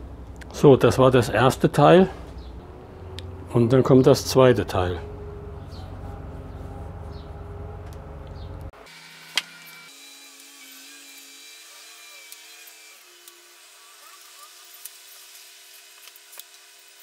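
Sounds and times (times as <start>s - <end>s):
engine rumbling: 0.0s - 8.8s.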